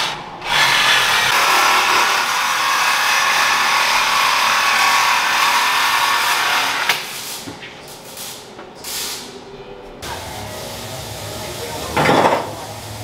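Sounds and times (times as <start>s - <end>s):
power tool running: 0.4s - 6.9s.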